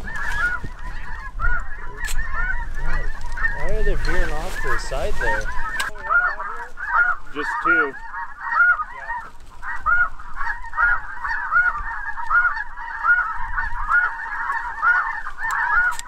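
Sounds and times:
snow geese honking: 0.0s - 16.0s.

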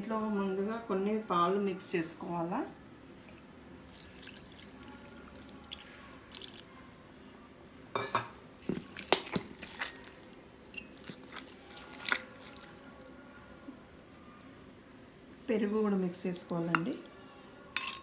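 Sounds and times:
milk pouring into a bowl: 3.8s - 7.8s
ladle mashing wet rice: 10.8s - 12.9s.

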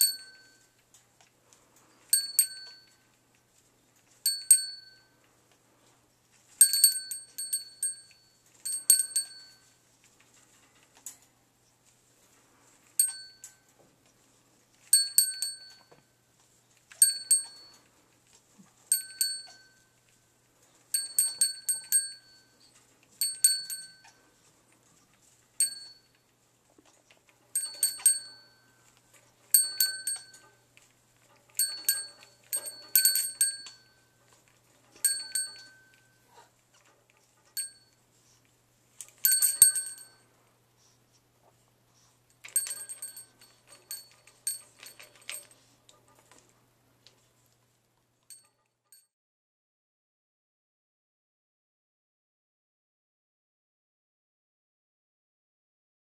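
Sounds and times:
small metal bell jingling: 0.0s - 0.7s, 2.1s - 3.0s, 4.2s - 5.2s, 6.6s - 9.8s, 13.0s - 13.7s, 14.9s - 16.0s, 17.0s - 17.9s, 18.9s - 20.0s, 20.9s - 24.2s, 25.6s - 26.3s, 27.5s - 28.9s, 29.5s - 30.6s, 31.3s - 36.2s, 37.4s - 38.0s, 39.1s - 40.2s, 42.3s - 45.7s, 48.3s - 49.1s.

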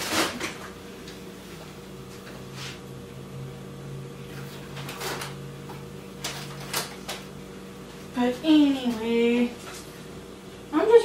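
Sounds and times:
refrigerator hum: 0.0s - 11.0s
grocery packaging rustling: 4.6s - 5.4s, 6.1s - 10.1s.

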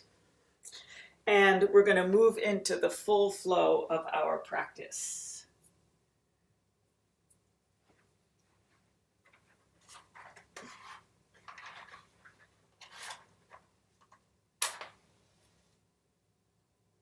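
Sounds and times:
matchbox rustling: 9.4s - 14.2s.

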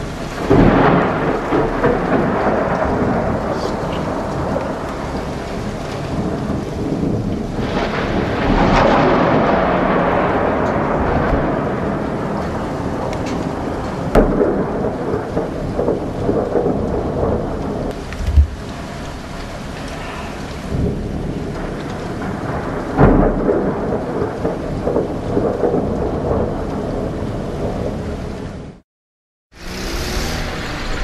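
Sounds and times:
heavy rain: 0.0s - 28.8s, 29.5s - 31.0s
thunder rumbling and cracking: 0.0s - 28.8s
low thump: 18.1s - 18.6s.

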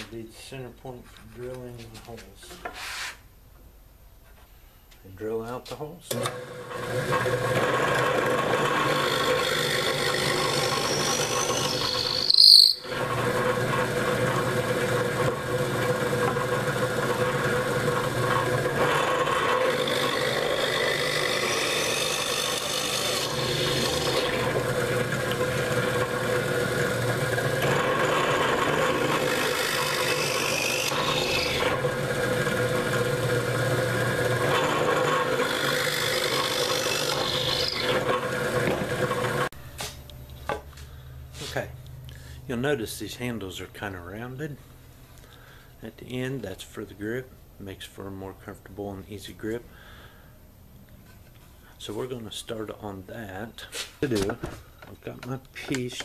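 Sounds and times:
drill press boring wood: 6.1s - 39.5s.

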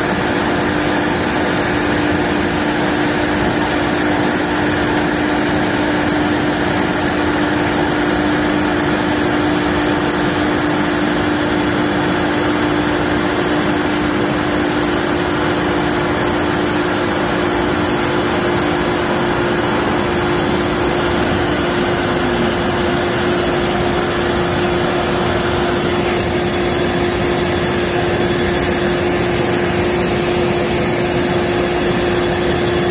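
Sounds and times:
router spindle humming: 0.0s - 32.9s
vacuum drawing air: 0.0s - 32.9s.

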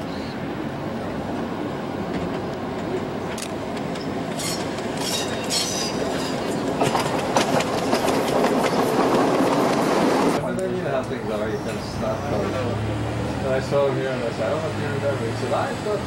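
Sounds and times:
train car running on track: 0.0s - 16.0s
wheels clicking over rail joints: 2.1s - 10.7s
high wheel squeals: 4.0s - 7.0s.

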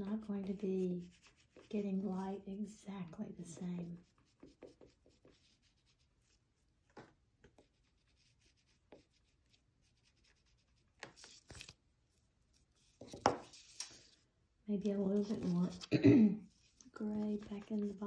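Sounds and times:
oil pastel rubbing on paper: 0.0s - 2.6s, 3.4s - 6.8s, 7.6s - 11.8s, 14.8s - 15.9s, 16.5s - 18.0s.

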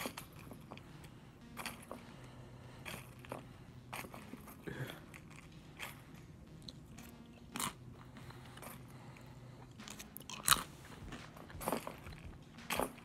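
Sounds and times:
cereal crunching: 9.8s - 13.0s.

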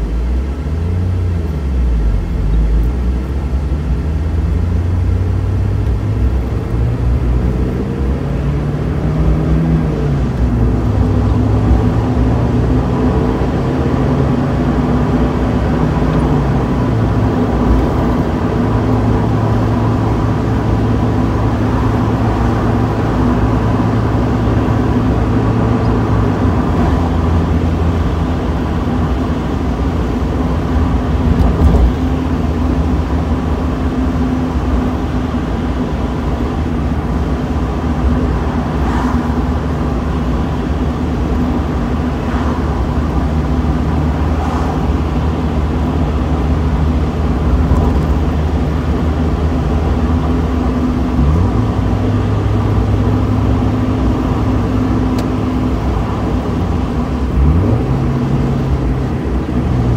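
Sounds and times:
car engine running: 0.0s - 59.9s
road rumble: 0.0s - 59.9s.

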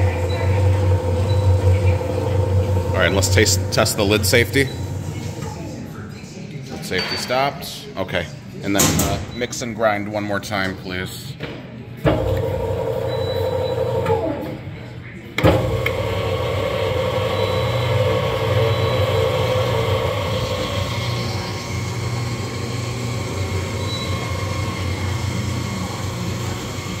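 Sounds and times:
mixer grinder motor humming: 0.0s - 5.8s, 12.2s - 14.6s, 15.4s - 27.0s
machine clunk: 8.8s - 9.4s, 15.4s - 16.1s.

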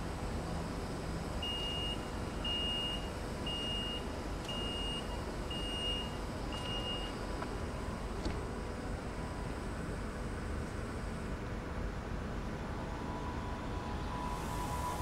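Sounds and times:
steady background noise: 0.0s - 15.0s
door warning beeps: 1.4s - 7.2s.

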